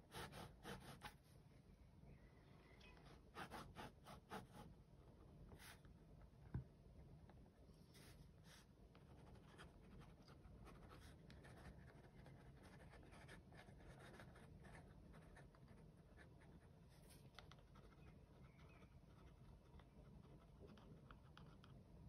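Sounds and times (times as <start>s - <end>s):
pen scratching on paper: 0.0s - 1.1s, 9.2s - 17.1s
low room hum: 0.0s - 22.0s.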